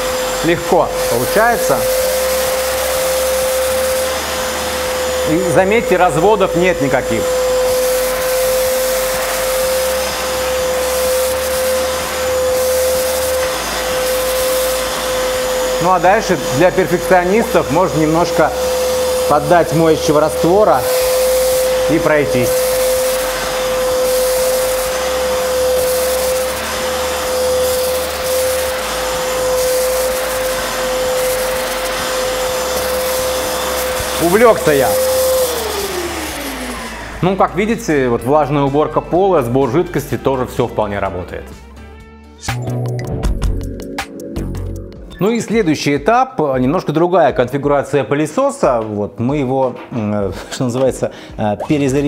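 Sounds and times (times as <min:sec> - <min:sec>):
vacuum cleaner motor whine: 0:00.0 - 0:39.8
spray hiss: 0:07.5 - 0:15.2, 0:18.0 - 0:35.5.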